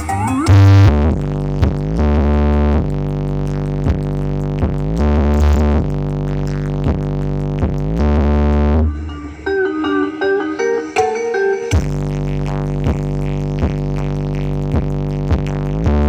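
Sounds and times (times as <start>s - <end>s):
loud electronic music: 0.0s - 16.0s.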